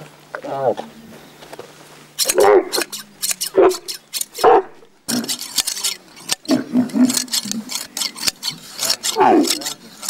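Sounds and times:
camel groaning: 2.2 - 10.0
hand shears snipping: 2.2 - 10.0.

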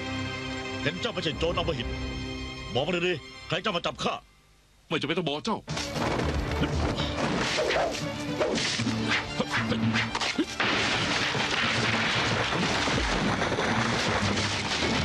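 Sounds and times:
crash: 10.1 - 15.0.

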